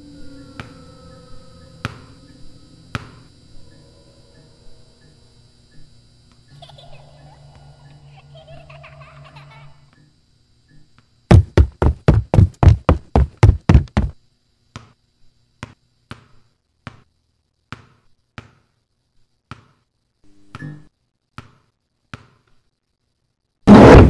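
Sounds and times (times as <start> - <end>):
ball bouncing on tiled floor: 11.3 - 14.2, 15.6 - 17.1, 17.7 - 18.7, 19.5 - 19.8, 21.4 - 22.6
rapid loud knocks: 11.3 - 14.2.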